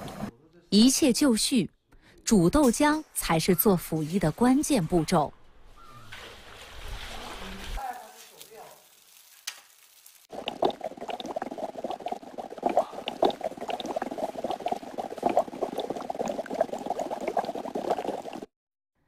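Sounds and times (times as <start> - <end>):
milk boiling and bubbling: 10.2 - 18.5.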